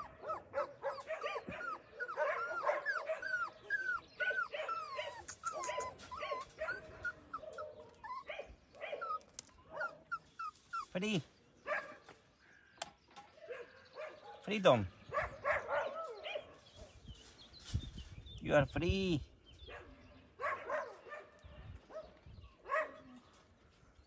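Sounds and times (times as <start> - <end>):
dog whimpering: 0.0 - 11.0.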